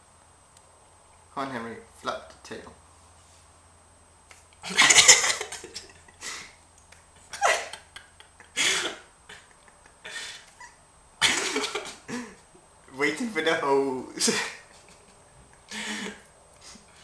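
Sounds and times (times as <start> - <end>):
person's stifled breathy laughter: 4.6 - 6.6, 7.2 - 12.4, 14.2 - 16.9.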